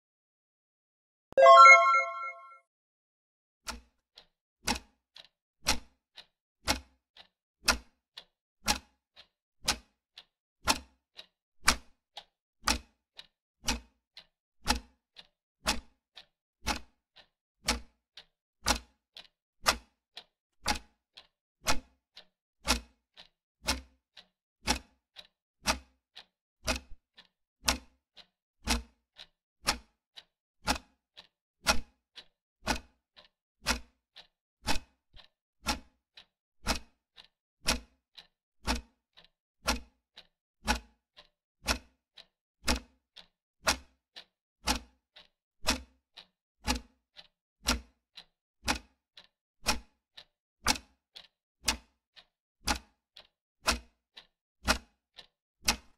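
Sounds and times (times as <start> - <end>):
clock ticking: 1.4 - 2.4, 10.7 - 20.0, 20.7 - 21.8, 22.7 - 25.9, 26.7 - 30.0, 30.7 - 55.9.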